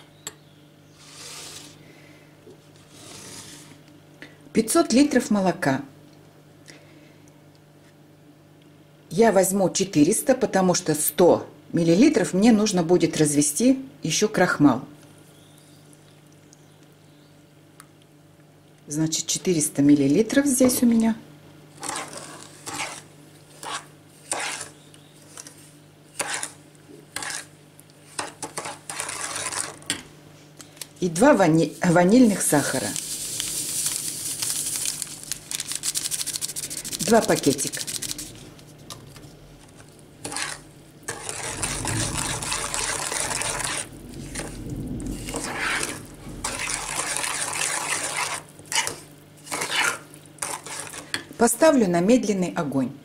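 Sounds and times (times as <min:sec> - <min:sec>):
metal spoon scraping saucepan: 0:40.2 - 0:44.5, 0:45.3 - 0:51.1.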